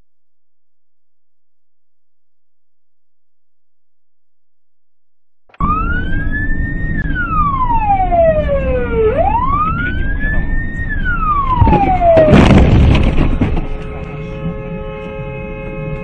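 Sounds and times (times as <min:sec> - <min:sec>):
road and engine noise: 0:05.5 - 0:16.0
wailing siren: 0:05.5 - 0:16.0.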